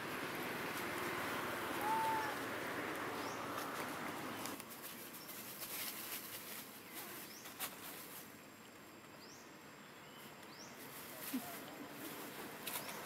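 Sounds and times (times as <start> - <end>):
steady outdoor hiss: 0.0 - 13.0
rising bird chirps: 1.7 - 2.5.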